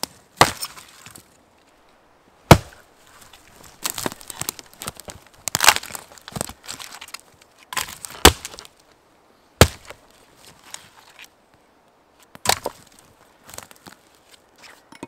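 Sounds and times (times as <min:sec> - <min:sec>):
hatchet chopping log: 0:00.4 - 0:00.8, 0:02.5 - 0:02.8, 0:03.8 - 0:06.6, 0:07.8 - 0:08.7, 0:09.6 - 0:10.0, 0:12.4 - 0:12.8.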